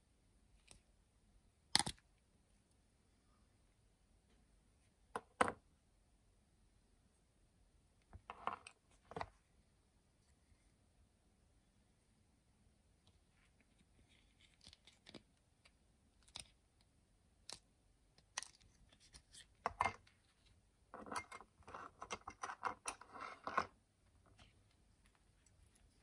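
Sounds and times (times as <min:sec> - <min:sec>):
clicking and scraping: 0:21.0 - 0:26.0.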